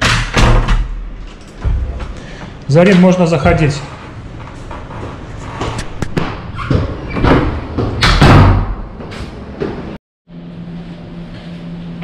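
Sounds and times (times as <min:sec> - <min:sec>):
door thud: 0:00.0 - 0:01.0, 0:01.6 - 0:02.2, 0:06.0 - 0:08.8
door opening and shutting: 0:04.7 - 0:09.8.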